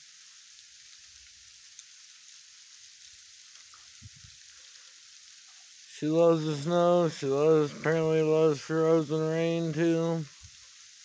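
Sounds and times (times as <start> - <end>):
ice pellets pattering on ground: 0.0 - 10.4
faint ticks: 0.2 - 7.2.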